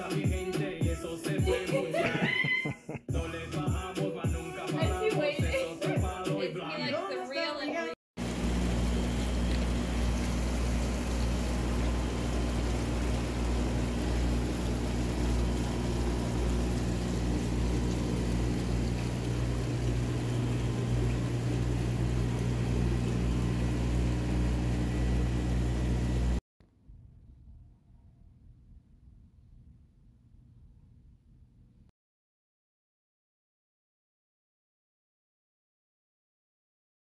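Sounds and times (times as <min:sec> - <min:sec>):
machinery humming loudly: 0:08.2 - 0:26.4.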